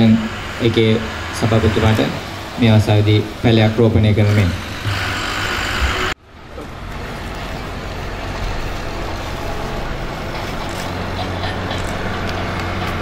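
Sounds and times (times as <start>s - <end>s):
road traffic rumble: 0.0s - 13.0s
constant low hum: 5.8s - 13.0s.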